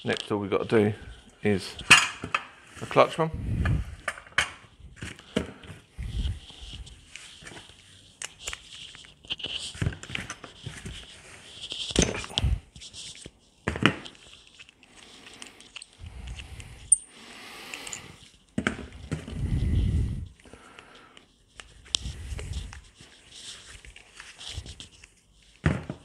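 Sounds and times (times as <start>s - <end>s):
metal parts clicking and scraping: 14.1s - 17.1s, 17.7s - 18.2s.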